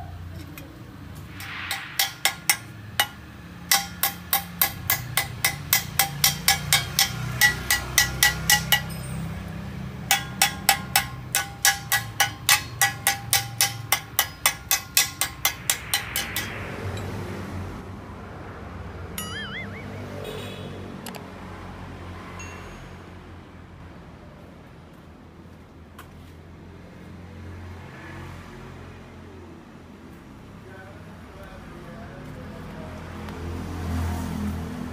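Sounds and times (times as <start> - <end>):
hammer striking metal muffler: 1.3 - 17.2.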